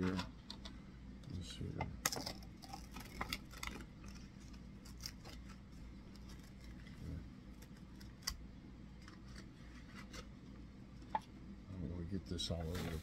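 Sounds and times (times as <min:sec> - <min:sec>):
low room hum: 0:00.0 - 0:13.0
plastic cup clicks and crinkles: 0:02.0 - 0:05.6.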